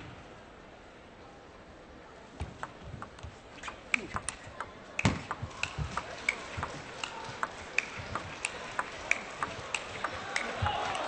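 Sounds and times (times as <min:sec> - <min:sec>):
table tennis ball clicks: 0:02.6 - 0:10.6.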